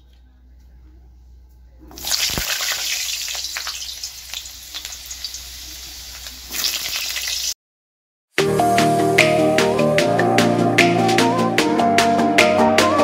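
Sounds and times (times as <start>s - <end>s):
vegetables sizzling in hot oil: 2.0s - 7.6s
music: 8.4s - 13.0s.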